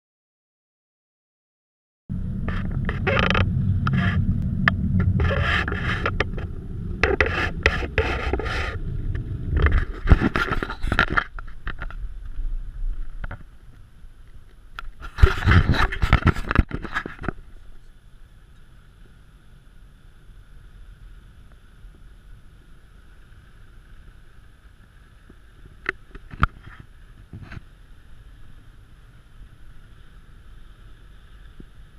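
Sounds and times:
tyres rumbling over sand: 0:02.1 - 0:17.9
scraping and rattling: 0:02.4 - 0:13.7, 0:14.8 - 0:17.4.

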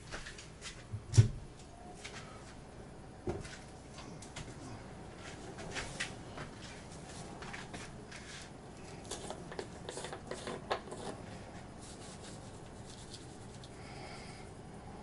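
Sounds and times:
handling clicks and scrapes: 0:07.3 - 0:13.8.

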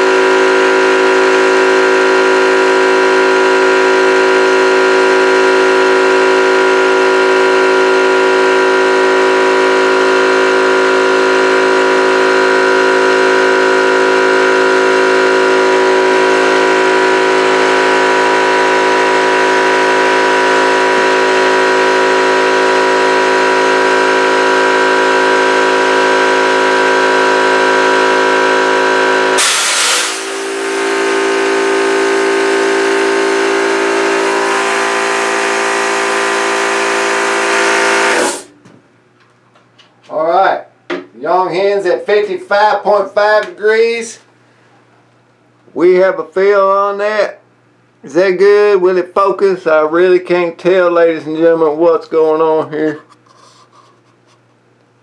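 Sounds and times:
air compressor running: 0:00.0 - 0:38.7
burst of hissing air: 0:29.4 - 0:31.2.

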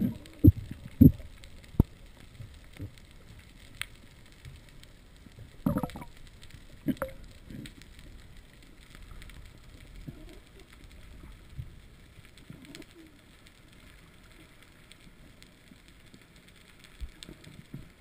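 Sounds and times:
low underwater rumble: 0:00.0 - 0:03.4, 0:04.1 - 0:12.7
faint underwater clicks: 0:00.0 - 0:18.0.

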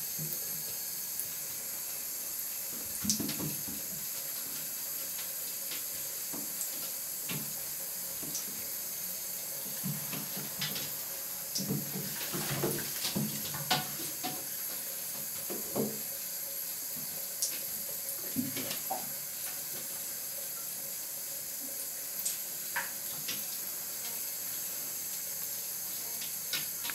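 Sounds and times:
steady hiss: 0:00.0 - 0:26.9
kittens' paws tapping on a tub: 0:03.0 - 0:04.0, 0:09.8 - 0:11.0, 0:11.6 - 0:14.5.

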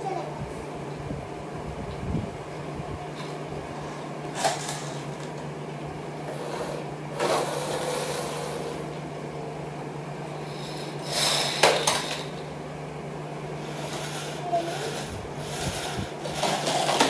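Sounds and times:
steady low hum: 0:00.0 - 0:17.0
toy car wheels whirring on tiles: 0:04.4 - 0:05.0, 0:06.3 - 0:08.8, 0:10.5 - 0:12.3, 0:13.6 - 0:17.0.

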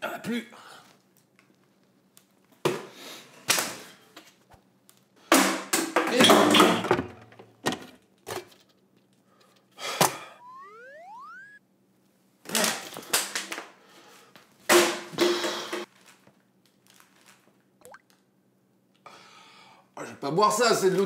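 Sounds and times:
rising whistle-like tone: 0:10.4 - 0:11.6.

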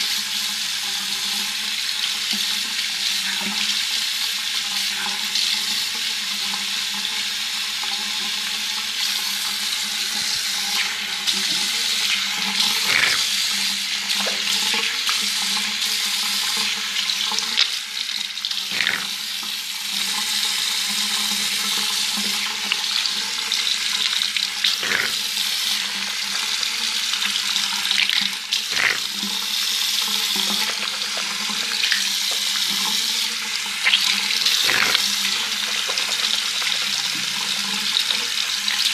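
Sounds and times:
toothbrush scrubbing teeth: 0:09.8 - 0:19.7, 0:24.0 - 0:26.6, 0:27.2 - 0:37.4.

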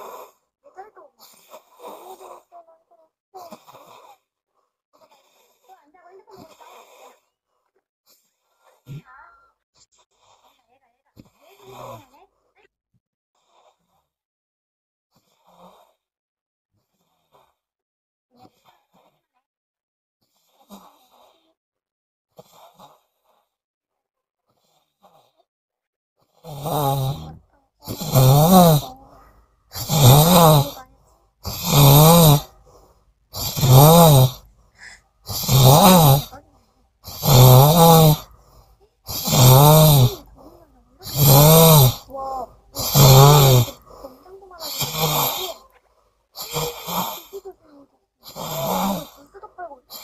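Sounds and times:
woman snoring: 0:00.0 - 0:02.6, 0:03.4 - 0:04.3, 0:06.2 - 0:07.2, 0:26.4 - 0:45.8, 0:46.4 - 0:50.0.

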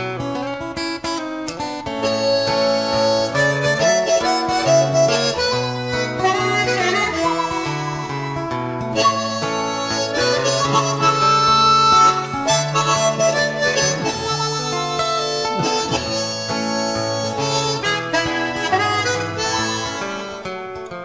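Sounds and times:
guitar accompaniment: 0:00.0 - 0:21.0
harmonica melody: 0:00.2 - 0:21.0.

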